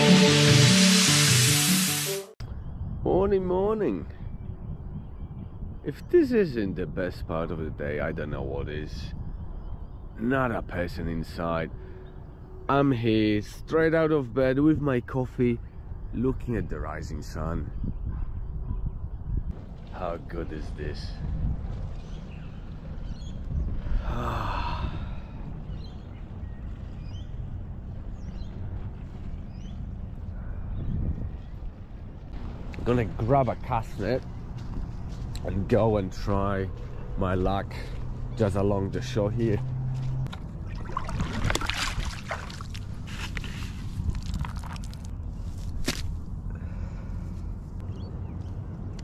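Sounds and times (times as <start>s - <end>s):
steady low rumble: 18.4s - 49.0s
person sighing: 23.9s - 25.4s
water sloshing in plastic bucket: 40.3s - 43.5s
net rustling on wet sand: 40.8s - 46.2s.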